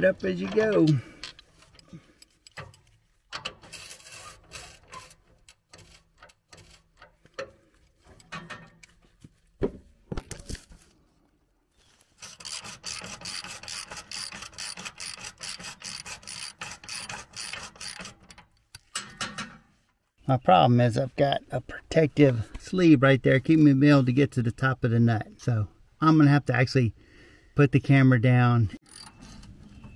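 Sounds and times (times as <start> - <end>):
tools scraping metal: 0.3 - 9.0, 12.1 - 19.7, 28.8 - 29.9
socket wrench ratchet clicking: 28.8 - 29.2.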